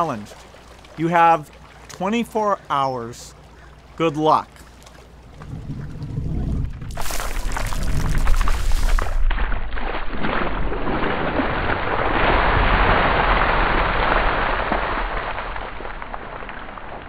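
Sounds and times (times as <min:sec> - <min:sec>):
ice water splashing: 0:04.4 - 0:17.0.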